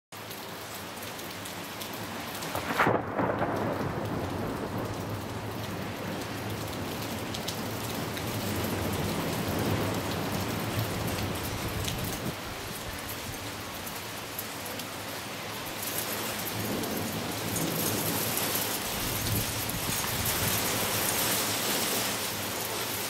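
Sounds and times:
heavy rain falling: 0.2 - 23.0
loud thunder crack: 2.5 - 6.0.

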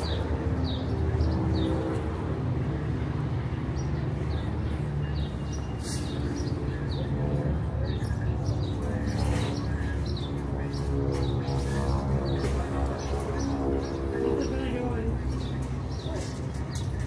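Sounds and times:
traffic hum: 0.0 - 17.0
small birds chirping: 3.6 - 17.0.

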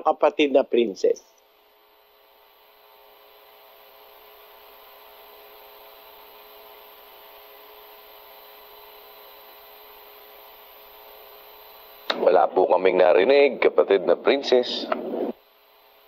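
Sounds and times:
faint electrical hum: 0.0 - 16.0
steady line hiss: 0.0 - 16.0.

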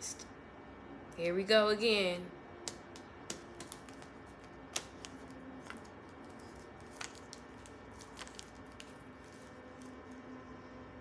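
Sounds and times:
cards clicking and tapping: 2.6 - 10.1.

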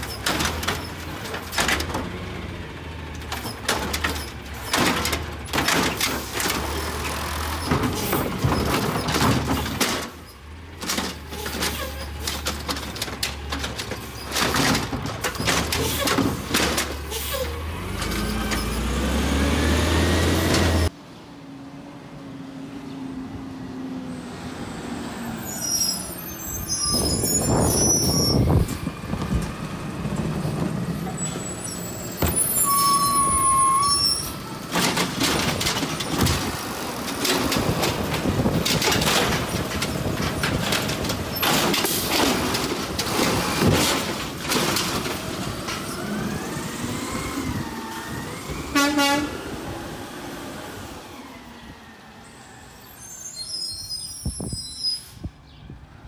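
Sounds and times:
garbage truck engine: 0.0 - 21.0, 21.7 - 55.2
brake squeal: 6.2 - 12.7, 15.3 - 20.9, 25.2 - 28.9, 30.3 - 36.4, 51.1 - 55.4
high squeaks: 25.4 - 28.7, 31.0 - 34.6, 52.9 - 55.2
hydraulic arm lifting cart: 26.1 - 48.8.

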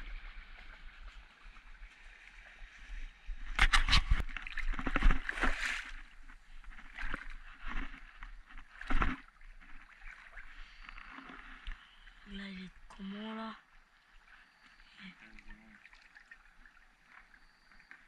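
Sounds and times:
shallow water splashing: 0.0 - 18.0.

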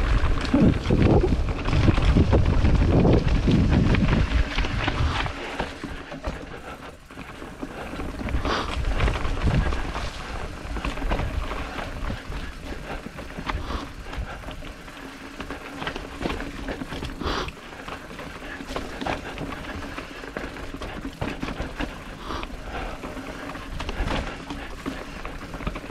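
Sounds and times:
wind buffeting microphone: 0.0 - 5.7, 8.0 - 14.6
bike chain rattling: 0.0 - 25.9
tyres crunching over dirt and rocks: 0.0 - 25.9.

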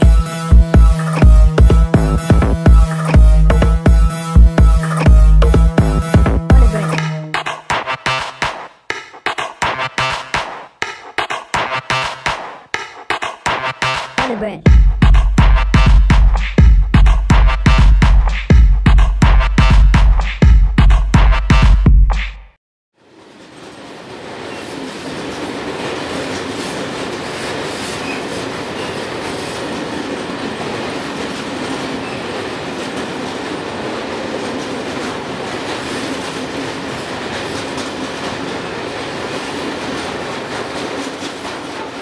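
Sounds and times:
freight train rumbling past: 0.0 - 8.4, 23.0 - 42.0
wheels clicking over rail joints: 23.1 - 42.0.

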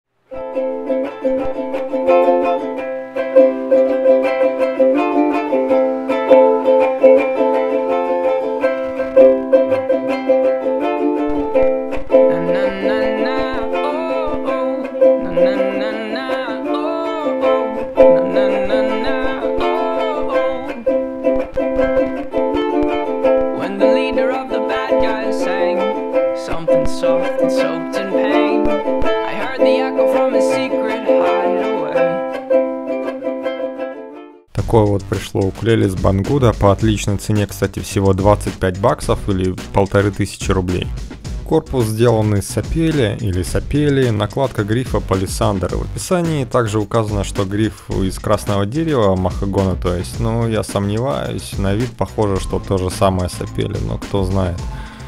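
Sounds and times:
ukulele strummed chords: 0.2 - 55.0
person singing: 12.1 - 22.2, 23.5 - 32.4, 41.5 - 55.0.

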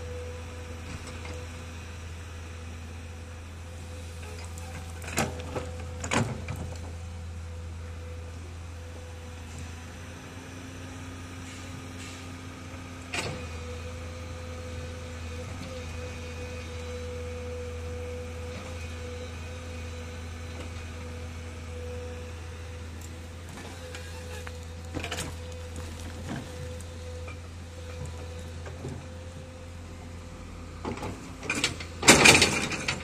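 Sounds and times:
diesel engine droning: 0.0 - 33.0
hydraulics whining: 9.0 - 33.0.

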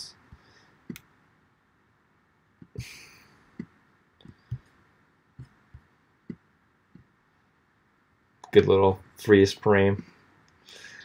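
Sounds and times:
computer mouse and key clicks: 0.9 - 1.1.

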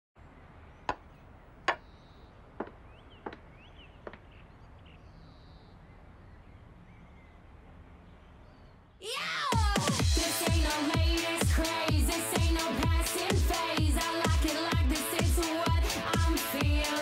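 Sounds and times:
faint bird chirps: 0.2 - 9.1.

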